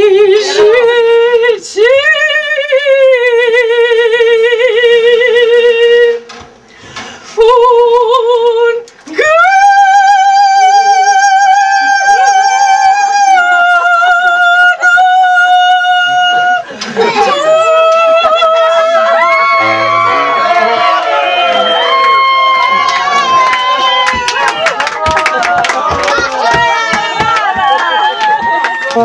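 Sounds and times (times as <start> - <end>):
woman singing with vibrato: 0.0 - 6.3, 7.3 - 20.4.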